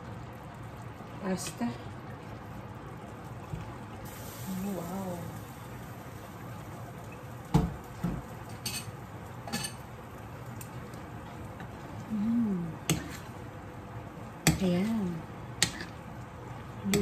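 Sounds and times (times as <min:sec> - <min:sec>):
sauce simmering hiss: 0:00.0 - 0:17.0
utensil clinking on frying pan: 0:08.5 - 0:09.8
person humming: 0:12.1 - 0:12.8.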